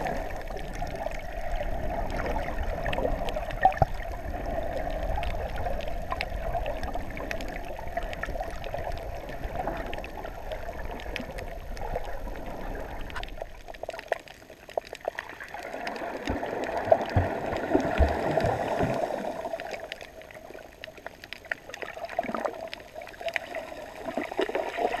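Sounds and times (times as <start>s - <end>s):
small sharp underwater clicks: 0.0s - 24.8s
water sloshing and gurgling: 0.0s - 25.0s.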